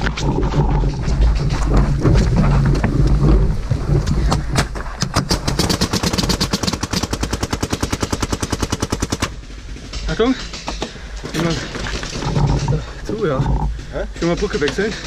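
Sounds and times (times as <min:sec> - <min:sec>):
low rumbling movement noise: 0:00.0 - 0:05.7, 0:09.3 - 0:15.0
paintball marker rapid firing: 0:05.1 - 0:09.4.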